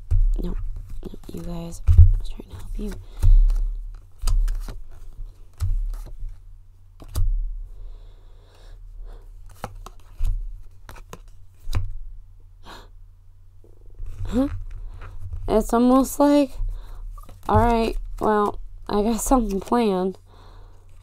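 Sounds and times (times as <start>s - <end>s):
cards rustling: 0.5s - 6.4s, 9.4s - 11.8s, 14.0s - 20.2s.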